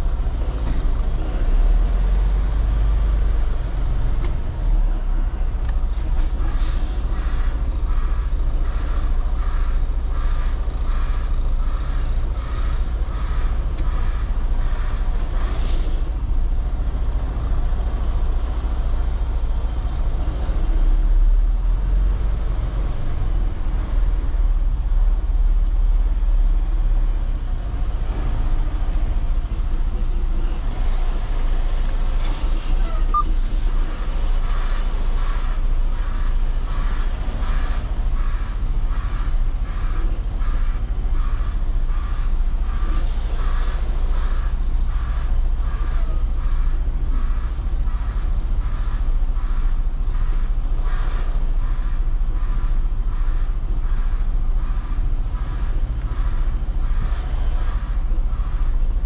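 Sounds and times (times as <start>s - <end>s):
diesel truck engine idling low: 0.0s - 59.0s
backup alarm beeping: 32.8s - 33.4s.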